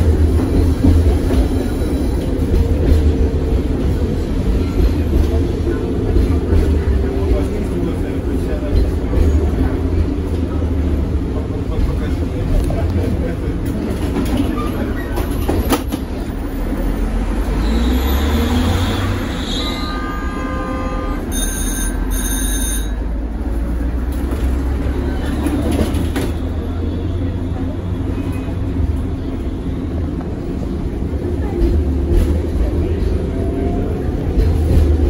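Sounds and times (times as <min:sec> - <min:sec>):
tram motors and wheels rumbling: 0:00.0 - 0:35.0
wheel squeal: 0:17.4 - 0:20.3
short high beeps: 0:21.3 - 0:23.0.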